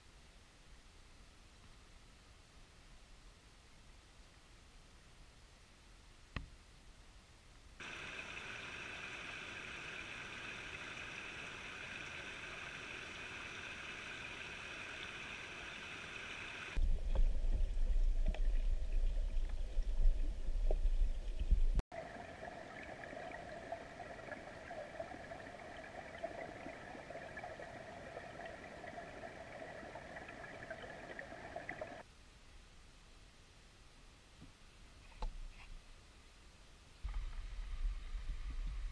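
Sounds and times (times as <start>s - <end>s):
creek water over stones: 7.8s - 32.1s
underwater rumble: 16.8s - 32.0s, 37.1s - 38.9s.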